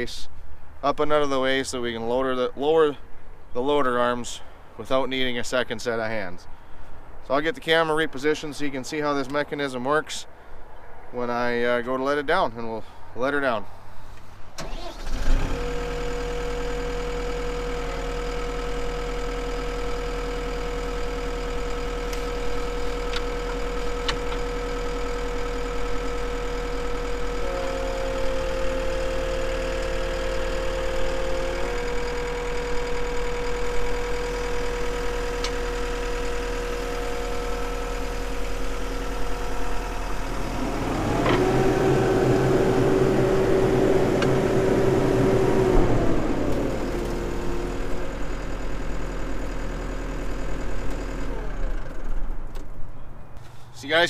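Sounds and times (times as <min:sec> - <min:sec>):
hydraulic whine: 0:14.6 - 0:52.2
diesel engine running: 0:14.6 - 0:52.6.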